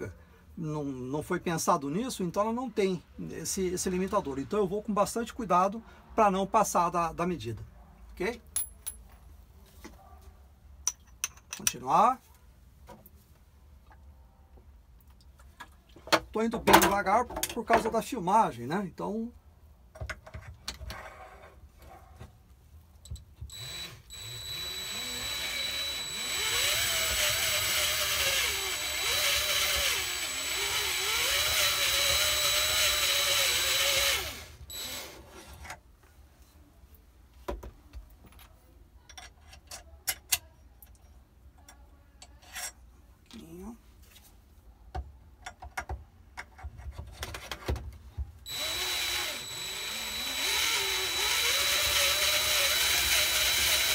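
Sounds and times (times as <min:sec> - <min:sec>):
drill motor running: 0:23.5 - 0:35.2, 0:48.5 - 0:53.9.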